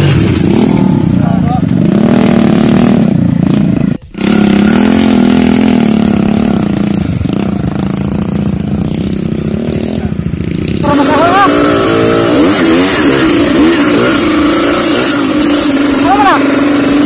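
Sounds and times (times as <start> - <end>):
dirt bike engines revving: 0.0 - 17.0.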